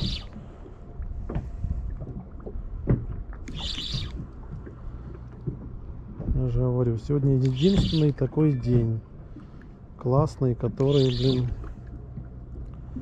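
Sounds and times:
wind rumbling: 0:00.0 - 0:09.4
water around a boat: 0:00.0 - 0:13.0.

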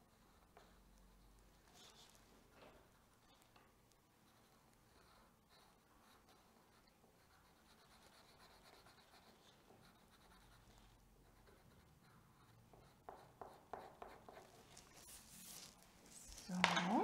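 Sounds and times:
felt-tip pen scratching on paper: 0:04.3 - 0:16.4.

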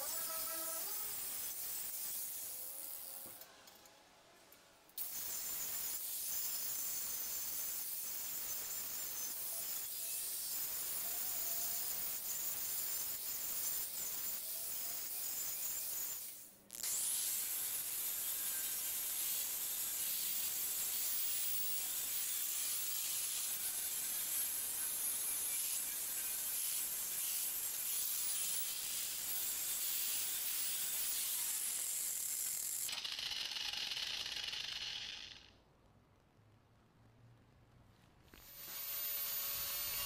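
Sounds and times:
angle grinder grinding metal: 0:00.0 - 0:03.4, 0:16.8 - 0:35.5, 0:38.3 - 0:40.0
angle grinder running idle: 0:32.4 - 0:35.5.

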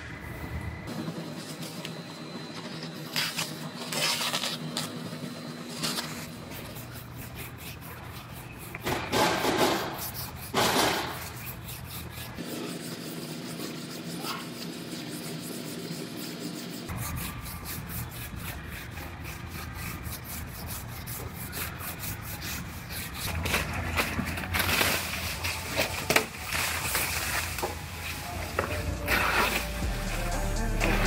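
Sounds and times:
steady background hum: 0:00.0 - 0:31.0
sandpaper rasping on metal panel: 0:05.7 - 0:23.5.

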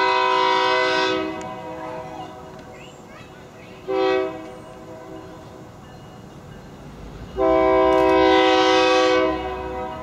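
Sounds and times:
locomotive air horn blast: 0:00.0 - 0:02.2, 0:03.9 - 0:05.2, 0:07.4 - 0:10.0.

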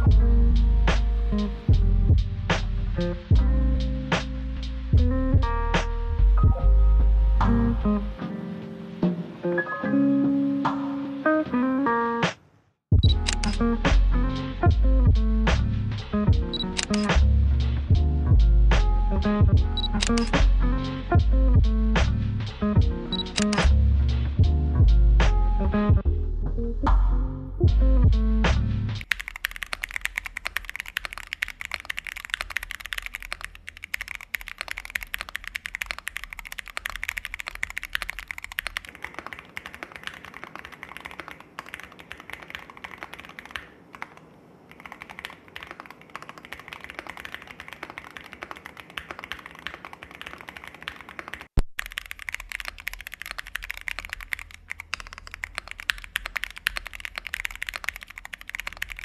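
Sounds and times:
sharp click: 0:13.0 - 0:13.6, 0:16.5 - 0:17.2, 0:19.8 - 0:20.5, 0:23.1 - 0:23.8
fast typing on mechanical keyboard: 0:13.1 - 0:13.6, 0:16.5 - 0:17.2, 0:19.8 - 0:20.4, 0:23.1 - 0:23.6, 0:29.0 - 0:59.0.

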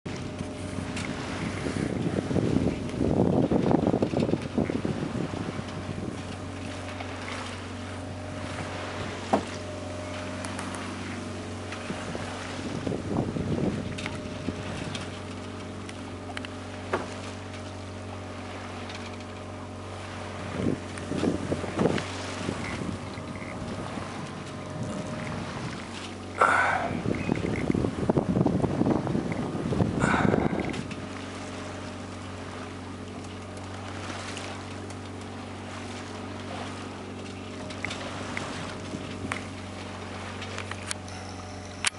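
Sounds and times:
light knocks from rigging: 0:00.1 - 0:04.9, 0:05.5 - 0:13.0, 0:13.7 - 0:19.6, 0:20.4 - 0:26.4, 0:27.0 - 0:27.9, 0:30.3 - 0:32.3, 0:33.0 - 0:41.9
steady low hum: 0:00.1 - 0:41.9
wind buffeting microphone: 0:00.1 - 0:41.9
light ticks: 0:14.8 - 0:16.6.

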